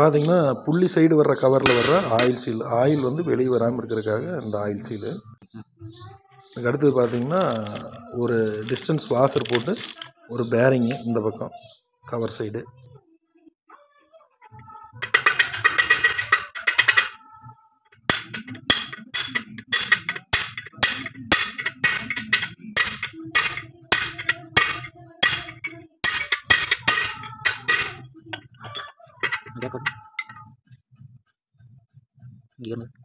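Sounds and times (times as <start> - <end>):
hammer striking steel pipe: 1.7 - 2.4, 18.1 - 28.0.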